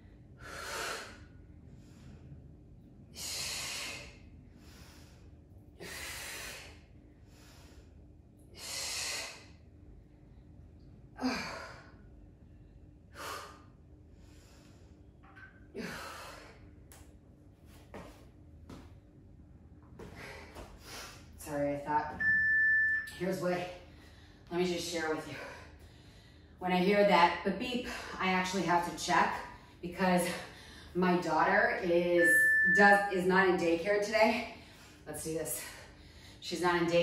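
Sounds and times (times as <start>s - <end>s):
woman breathing hard: 0.2s - 2.4s, 3.2s - 9.6s, 15.8s - 16.7s.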